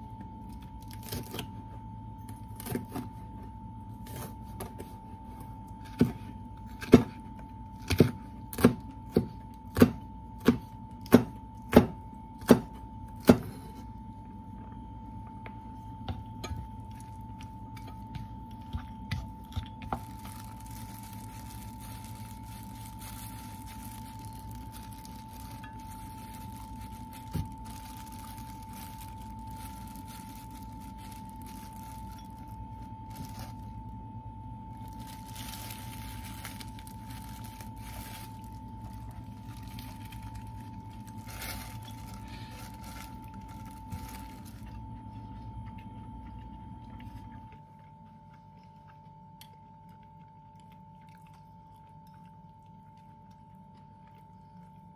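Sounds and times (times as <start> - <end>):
plastic gloves crinkling: 0.0 - 1.7, 16.7 - 45.3
low hum with faint high tone: 0.0 - 54.9
thin constant whine: 0.0 - 54.9.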